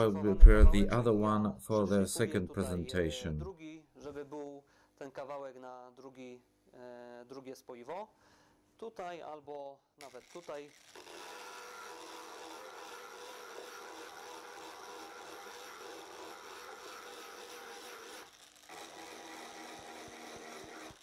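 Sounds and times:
rotary tool motor whining: 10.0s - 21.0s.

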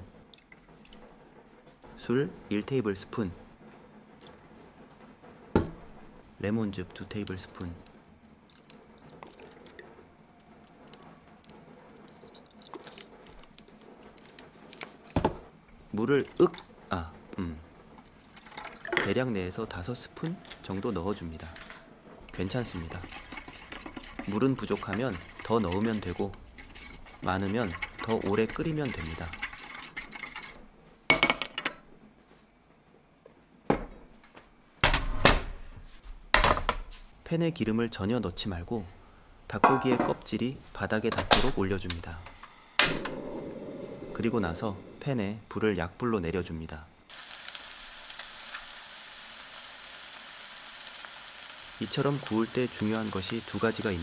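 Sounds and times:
knock: 5.6s - 5.8s
liquid dripping: 8.2s - 9.8s, 10.9s - 13.5s.

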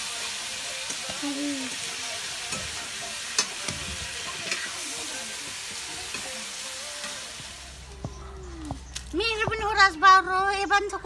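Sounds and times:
food sizzling in a metal pan: 0.0s - 8.0s.

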